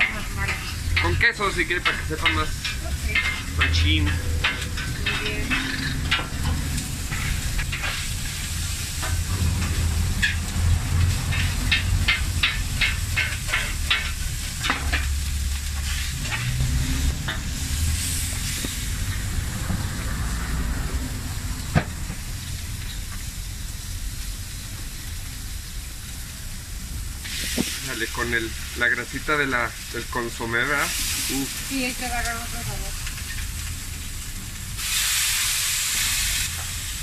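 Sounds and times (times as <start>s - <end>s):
metal spatula clacking on griddle: 0.0s - 8.1s, 8.9s - 16.6s
low steady rumble: 0.0s - 30.8s
meat sizzling on griddle: 0.0s - 37.0s.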